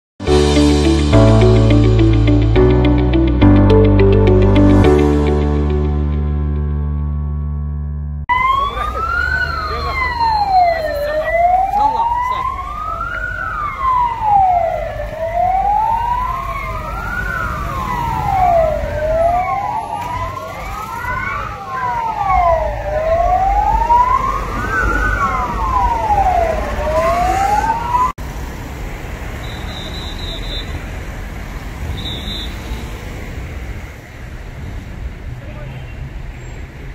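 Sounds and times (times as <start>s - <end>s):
second fainter siren: 8.3s - 28.1s
emergency vehicle siren wailing: 8.3s - 28.2s
rumble of engines and traffic: 8.3s - 36.9s.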